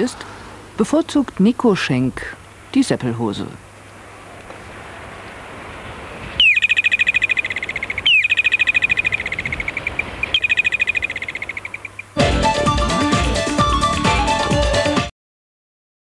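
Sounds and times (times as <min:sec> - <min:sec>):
bird-like trilling call: 0:06.3 - 0:12.2
music: 0:12.2 - 0:15.1.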